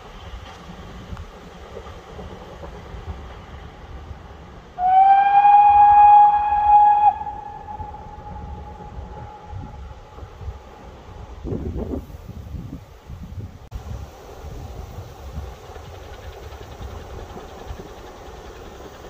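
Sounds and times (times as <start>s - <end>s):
train rumbling: 0.0s - 19.0s
steam locomotive whistle: 4.8s - 10.1s.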